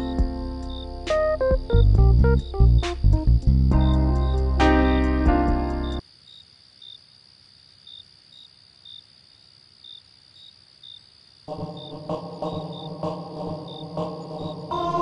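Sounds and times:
music: 0.0 - 6.0, 14.5 - 15.0
crickets chirping: 0.0 - 15.0
high insect trill: 0.0 - 15.0.

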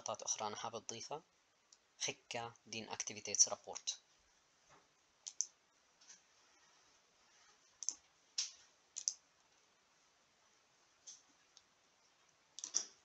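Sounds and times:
computer mouse clicks: 5.2 - 5.6, 7.8 - 9.2, 12.6 - 13.0.

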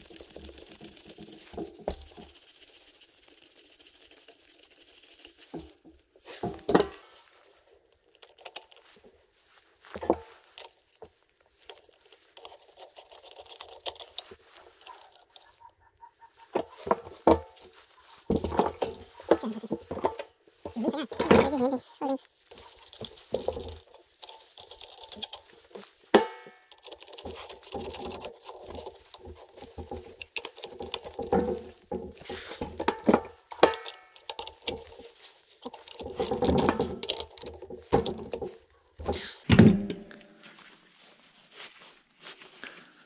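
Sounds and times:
metal parts clinking: 18.4 - 31.7, 32.4 - 38.4.

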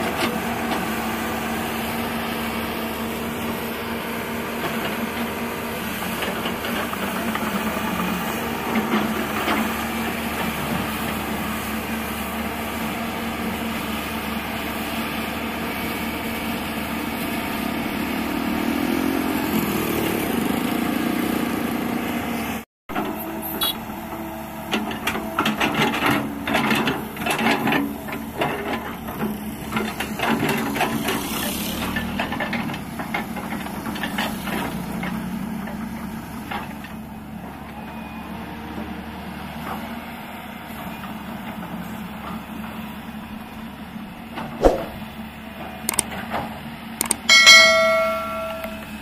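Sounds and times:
excavator diesel engine running: 0.0 - 49.0
click: 45.9 - 46.1, 47.0 - 47.3.

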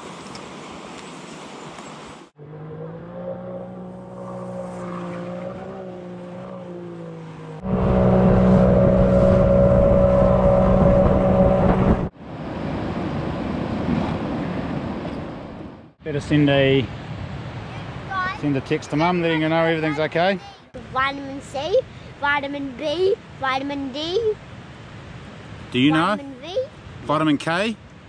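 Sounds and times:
wind: 0.0 - 28.0.

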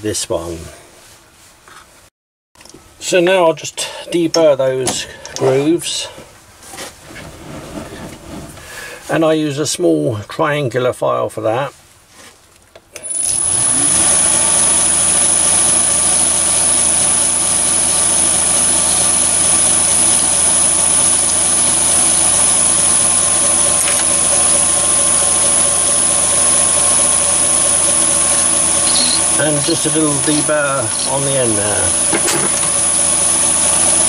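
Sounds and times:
lathe motor humming and whining: 13.0 - 34.0.

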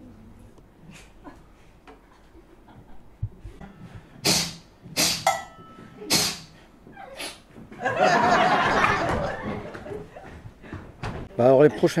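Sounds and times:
audience laughter: 7.8 - 10.3.

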